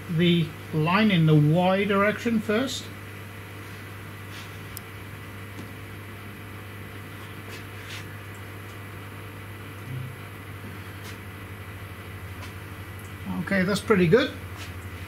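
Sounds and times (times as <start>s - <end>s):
low electrical hum: 0.0s - 15.0s
short low tone: 9.8s - 10.3s.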